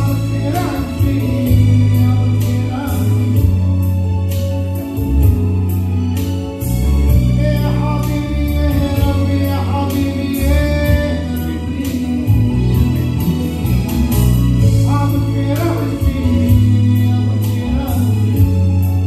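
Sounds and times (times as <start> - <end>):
man singing hymn into microphone: 0.0 - 3.6, 7.1 - 12.8, 14.6 - 19.0
sustained low instrumental notes: 0.0 - 19.0.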